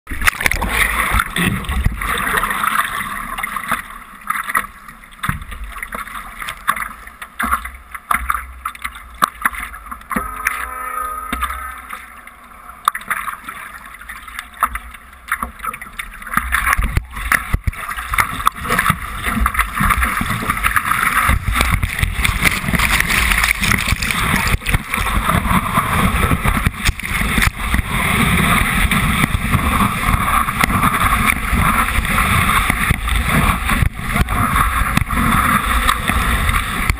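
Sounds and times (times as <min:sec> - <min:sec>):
water splashing around surfboard: 0:00.1 - 0:36.9
breaking wave white water: 0:16.6 - 0:36.9.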